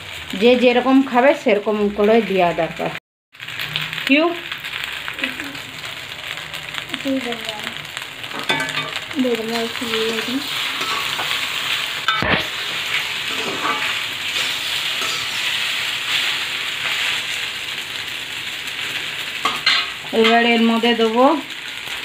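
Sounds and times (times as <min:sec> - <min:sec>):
food sizzling in a pan: 0:00.0 - 0:22.0
metal spatula scraping a pan: 0:09.8 - 0:17.4, 0:18.8 - 0:20.5.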